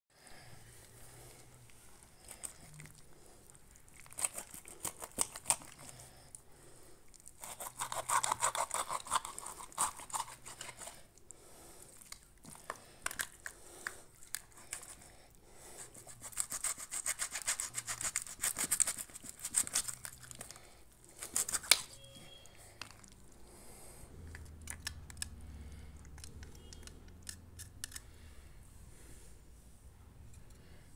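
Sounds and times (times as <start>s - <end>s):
knife scraping flesh: 3.9s - 6.1s, 7.3s - 11.0s, 15.8s - 22.1s.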